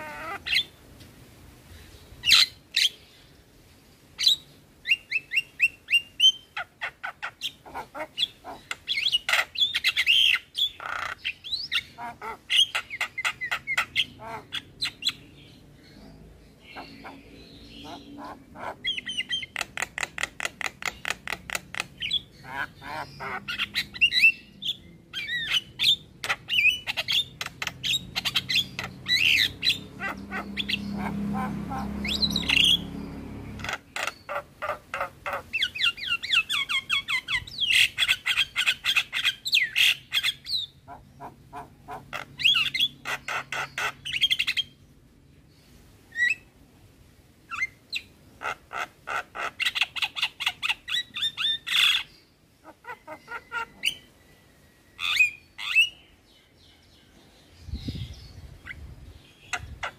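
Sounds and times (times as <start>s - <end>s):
bird chattering and whistling: 4.2s - 15.3s, 16.6s - 44.8s, 47.5s - 52.1s, 55.0s - 56.1s.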